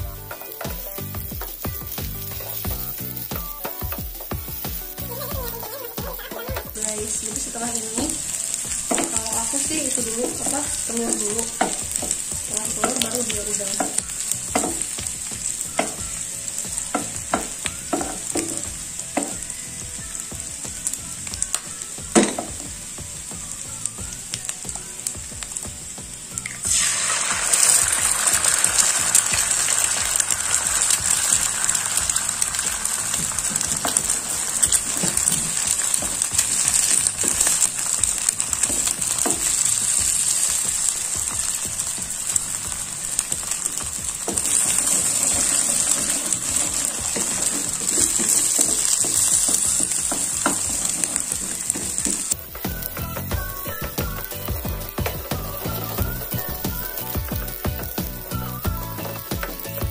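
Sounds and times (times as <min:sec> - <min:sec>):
food sizzling in hot oil: 0:00.0 - 0:59.9
spatula scraping and tapping pan: 0:44.2 - 0:53.0.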